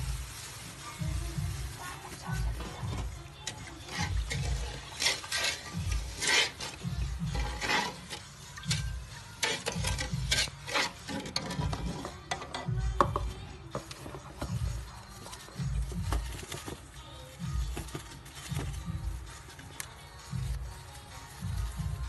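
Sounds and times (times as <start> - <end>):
liquid sloshing in metal pot: 2.1 - 17.0.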